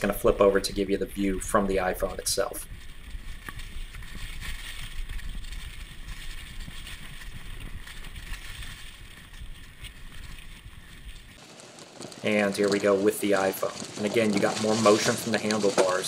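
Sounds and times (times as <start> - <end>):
wind rumble on microphone: 0.0 - 11.4
bike tyres crunching over leaves: 0.0 - 16.0.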